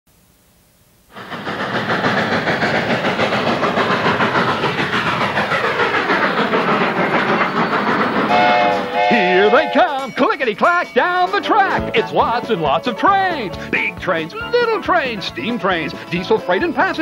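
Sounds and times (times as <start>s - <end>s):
steam locomotive passing: 1.1s - 17.0s
music: 8.4s - 17.0s.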